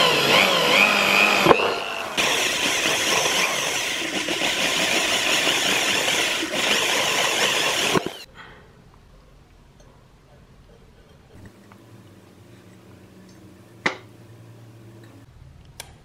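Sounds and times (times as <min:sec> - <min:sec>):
electric drill cutting metal: 0:00.0 - 0:08.3.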